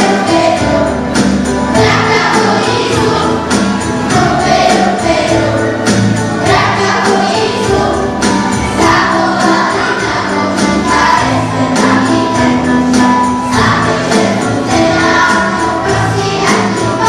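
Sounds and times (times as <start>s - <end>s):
backing track with beat: 0.0s - 17.0s
children singing: 0.0s - 17.0s
jingling percussion: 0.0s - 17.0s.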